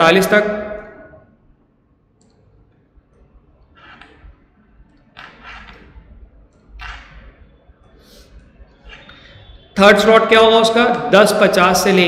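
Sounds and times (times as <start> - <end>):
computer mouse clicks: 2.1 - 9.3.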